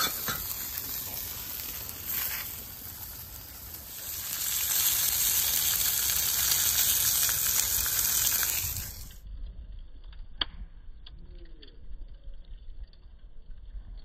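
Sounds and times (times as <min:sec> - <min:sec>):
ribs sizzling on a griddle: 0:00.0 - 0:09.2
campfire crackling: 0:00.0 - 0:14.0.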